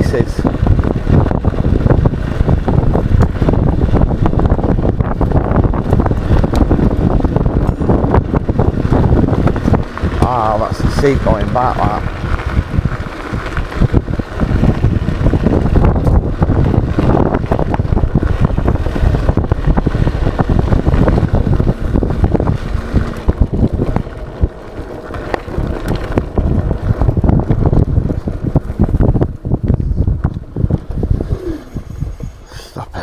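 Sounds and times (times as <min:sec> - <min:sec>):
electric scooter rumble and rattle: 0:00.0 - 0:33.0
wind buffeting microphone: 0:00.0 - 0:33.0.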